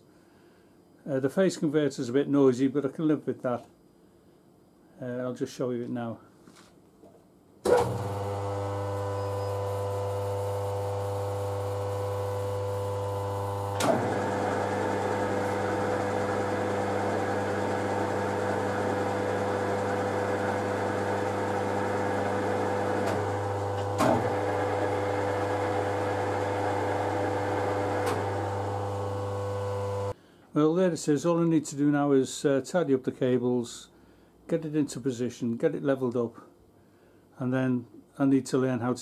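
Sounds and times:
lathe gear noise: 7.7 - 30.1
phase converter humming: 7.7 - 30.2
lathe spindle clunk: 13.7 - 14.4, 23.0 - 24.6, 28.0 - 28.4.

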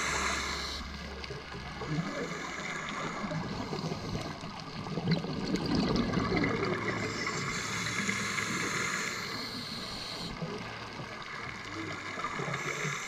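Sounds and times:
regulator hiss: 0.0 - 1.2, 6.9 - 10.5, 12.1 - 13.0
bubbles gurgling underwater: 1.0 - 8.9.

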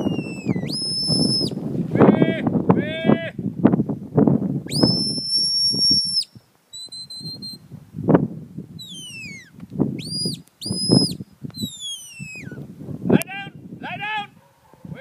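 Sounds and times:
sheepdog handler's whistle: 0.0 - 1.6, 4.7 - 7.6, 8.8 - 12.6.

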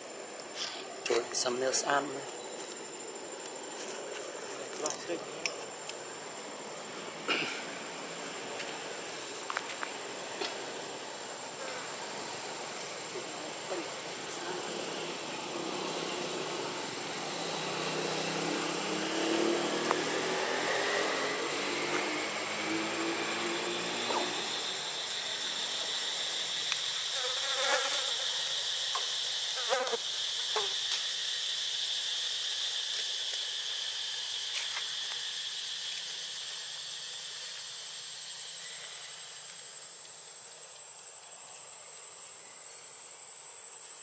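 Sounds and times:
insects droning: 0.0 - 44.0
rising whine: 12.2 - 26.8.

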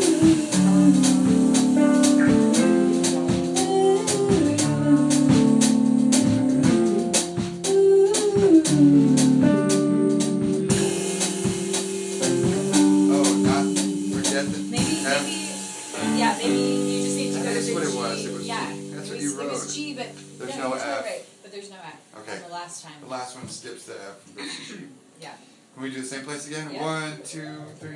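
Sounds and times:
sliding melody notes: 0.0 - 21.1
guitar: 0.0 - 21.4.

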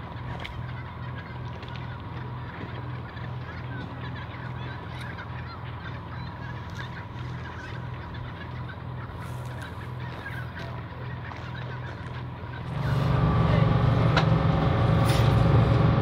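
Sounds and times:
diesel engine idling: 5.1 - 16.0.

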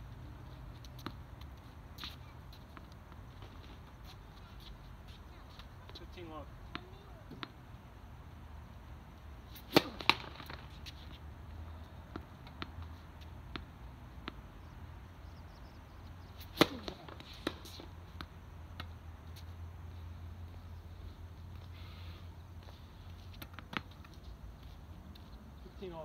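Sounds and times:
steady low hum: 0.0 - 25.8
tennis ball hits: 9.5 - 11.2, 16.4 - 18.9
ball bouncing on court: 9.6 - 10.8, 16.5 - 18.3.

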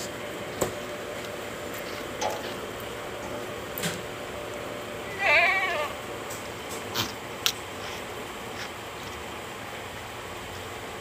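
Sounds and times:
steady background noise: 0.0 - 11.0
goat bleating: 5.1 - 6.0.

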